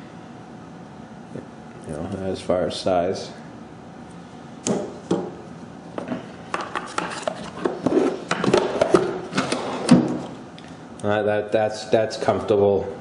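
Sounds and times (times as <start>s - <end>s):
toolbox drawers knocking: 8.3s - 10.2s.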